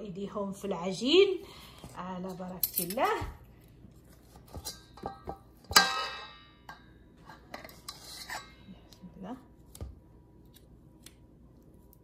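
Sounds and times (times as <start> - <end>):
bowl clanging and ringing: 4.6 - 7.0
metal spoon scraping a steel bowl: 7.2 - 8.7.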